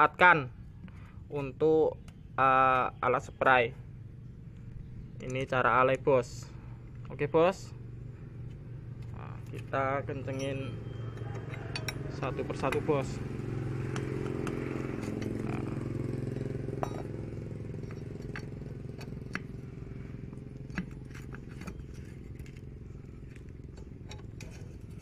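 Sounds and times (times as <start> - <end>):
engine hum: 0.0 - 25.0
wrench clicking and scraping: 8.4 - 12.9, 13.9 - 17.1, 17.7 - 19.6, 23.7 - 25.0.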